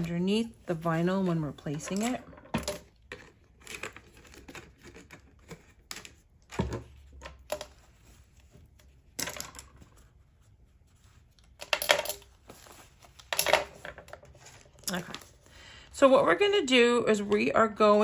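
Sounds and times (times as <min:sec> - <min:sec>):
small tools clattering on table: 0:01.6 - 0:04.0, 0:09.2 - 0:10.0, 0:11.6 - 0:12.4, 0:13.2 - 0:15.2.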